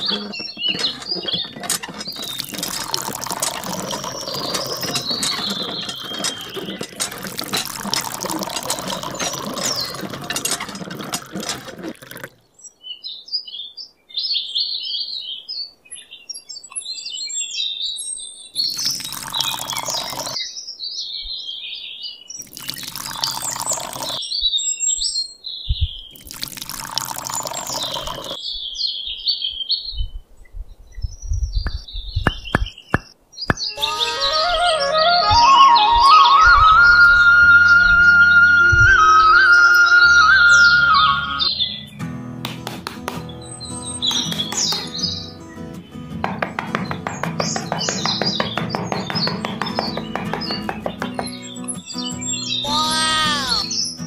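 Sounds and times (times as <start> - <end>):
water pouring and splashing: 0.0 - 12.4, 18.6 - 20.4, 22.4 - 24.2, 26.1 - 28.4
birds chirping: 0.0 - 30.2, 30.8 - 54.0.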